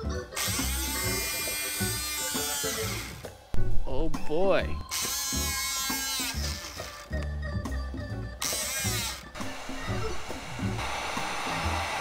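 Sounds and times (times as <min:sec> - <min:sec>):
hobby motors whining: 0:00.3 - 0:03.4, 0:08.4 - 0:12.0
plastic gears whirring: 0:04.9 - 0:07.1, 0:08.4 - 0:09.4.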